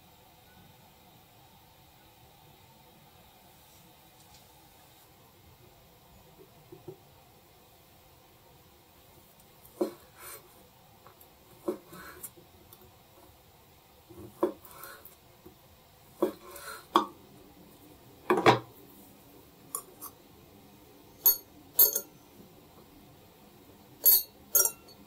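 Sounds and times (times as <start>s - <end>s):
utensils and dishes clinking: 21.2s - 22.2s, 24.0s - 25.0s.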